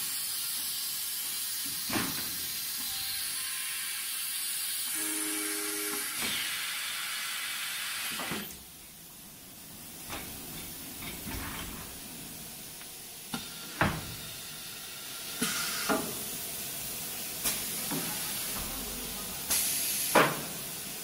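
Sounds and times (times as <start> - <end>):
machine hiss: 0.0 - 8.6, 13.2 - 21.0
compressed air bursts: 15.2 - 16.1, 19.5 - 20.8.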